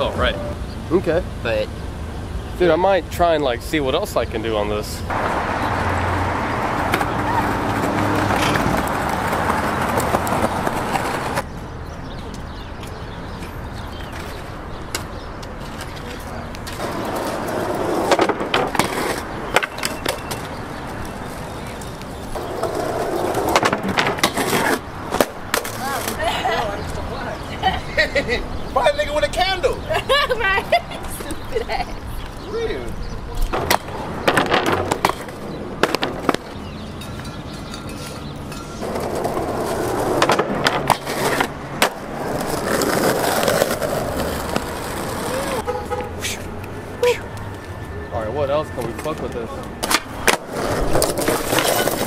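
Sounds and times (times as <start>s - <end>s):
skateboard wheels rolling on asphalt: 2.6s - 28.3s, 28.9s - 48.0s, 48.8s - 52.0s
skateboard clacks: 6.8s - 11.4s, 14.2s - 20.5s, 21.7s - 26.2s, 33.4s - 36.6s, 38.8s - 45.5s.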